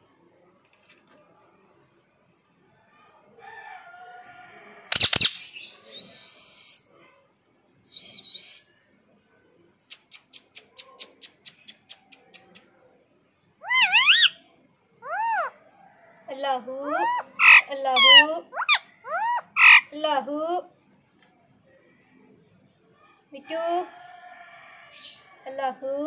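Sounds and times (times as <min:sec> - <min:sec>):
parrot screeching: 0:04.9 - 0:05.5, 0:13.6 - 0:14.4, 0:15.0 - 0:15.6, 0:16.9 - 0:20.0
parrot chatter: 0:04.9 - 0:05.6, 0:09.9 - 0:12.8, 0:13.6 - 0:14.4, 0:15.0 - 0:15.6, 0:16.9 - 0:20.0
parrot squawk: 0:04.9 - 0:05.6, 0:13.6 - 0:14.4, 0:15.0 - 0:15.6, 0:16.9 - 0:20.0
parrot whistle: 0:13.6 - 0:14.4.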